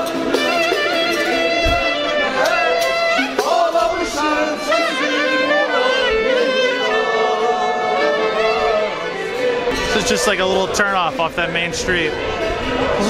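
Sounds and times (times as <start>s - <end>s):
person singing: 0.0s - 10.4s.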